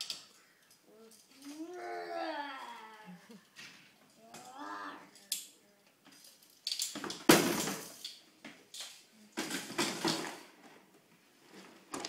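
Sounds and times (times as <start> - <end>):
plastic bins knocking on wooden floor: 7.0 - 7.9, 9.4 - 10.6
plastic bins scraping and rattling: 9.4 - 12.0.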